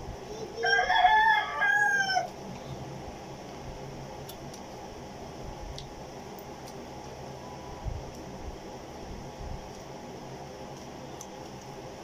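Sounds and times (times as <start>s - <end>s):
rooster crowing: 0.6s - 2.3s.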